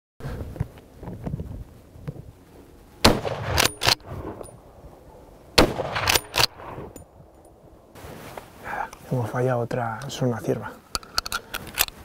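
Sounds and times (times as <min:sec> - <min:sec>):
rifle shots: 0:03.0 - 0:04.4, 0:05.6 - 0:07.0
rifle bolt metallic clacks: 0:03.2 - 0:04.6, 0:05.6 - 0:07.5, 0:10.9 - 0:12.0.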